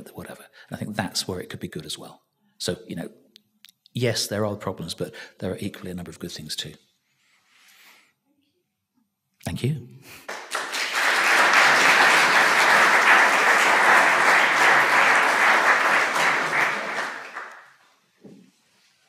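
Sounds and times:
audience applauding: 10.3 - 17.8.

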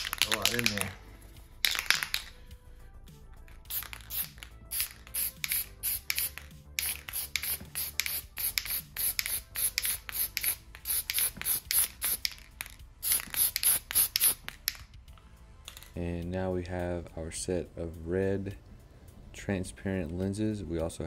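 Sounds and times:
background music: 0.0 - 21.0
aerosol can spraying bursts: 3.6 - 14.8.

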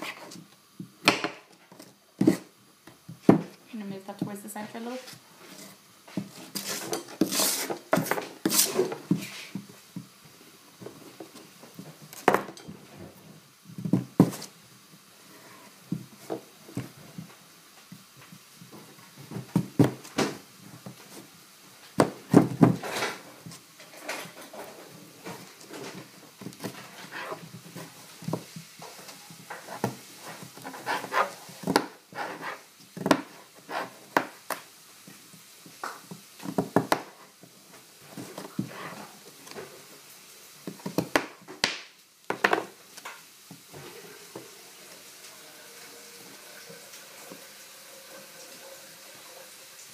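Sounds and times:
knife scraping squash: 5.0 - 9.6, 26.6 - 28.0, 29.5 - 32.8, 33.6 - 34.0.

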